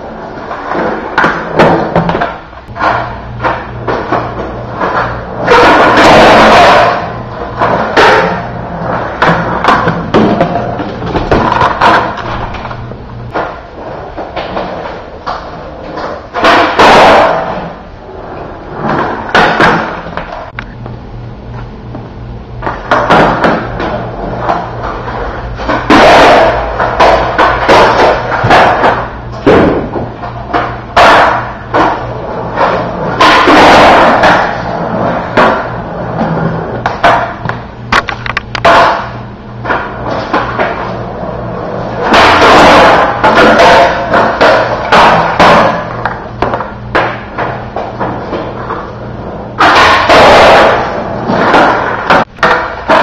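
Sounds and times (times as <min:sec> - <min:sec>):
skateboard wheels rolling on concrete: 0:00.0 - 0:20.9, 0:21.5 - 0:53.0
skateboard deck clacks: 0:00.5 - 0:13.6, 0:14.2 - 0:17.7, 0:22.6 - 0:34.6, 0:36.8 - 0:40.9, 0:42.0 - 0:48.8, 0:49.6 - 0:53.0
skateboard tail popping: 0:22.6 - 0:32.0, 0:36.8 - 0:40.9, 0:49.6 - 0:53.0.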